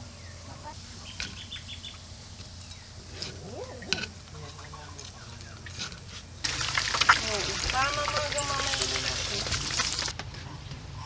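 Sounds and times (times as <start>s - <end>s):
faint bird chirps: 0.1s - 3.0s
oil sizzling in frying pan: 6.4s - 10.1s.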